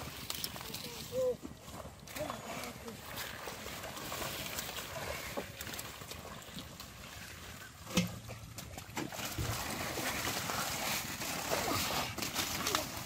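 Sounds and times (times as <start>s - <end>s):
muddy water sloshing: 0.0s - 13.0s
leaves rustling: 9.3s - 13.0s.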